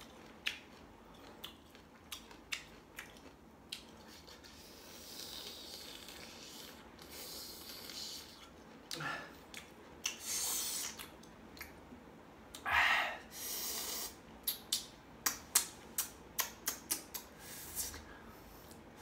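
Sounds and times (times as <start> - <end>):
chewing clicks and smacks: 0.0 - 4.6, 7.7 - 10.2, 10.8 - 11.8, 14.4 - 17.3
person eating crunchy fruit: 0.0 - 11.7
person gasping: 9.0 - 9.4, 12.6 - 13.5
breathy hisses: 12.7 - 14.2.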